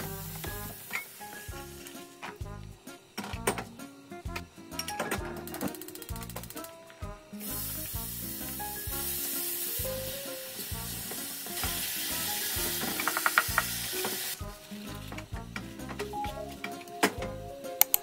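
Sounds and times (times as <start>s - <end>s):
meat sizzling in a frying pan: 0.1s - 2.1s, 7.4s - 15.1s
spatula stirring and tapping: 12.8s - 14.2s.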